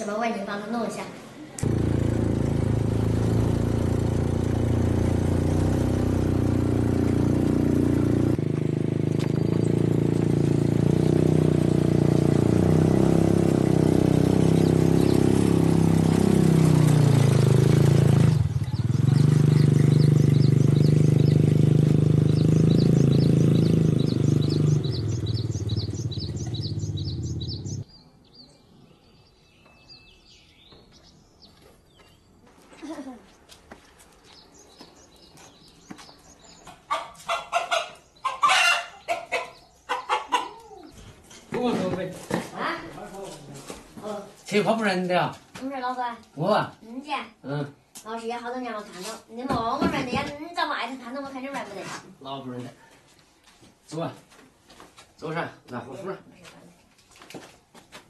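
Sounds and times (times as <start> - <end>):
birds chirping: 0.0 - 42.0
quad bike engine running: 1.6 - 27.8.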